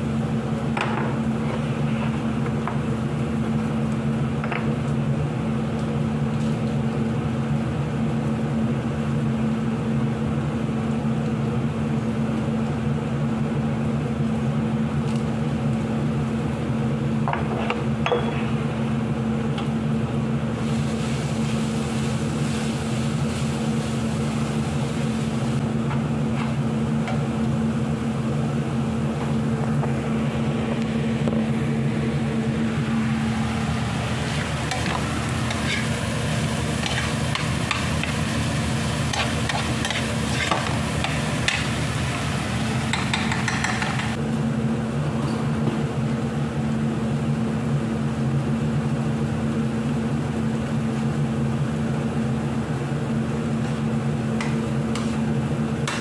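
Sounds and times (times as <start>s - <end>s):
low machine hum: 0.0s - 56.0s
meat sizzling in a frying pan: 33.2s - 43.4s
metal spatula scraping pan: 34.8s - 36.0s, 36.8s - 37.8s.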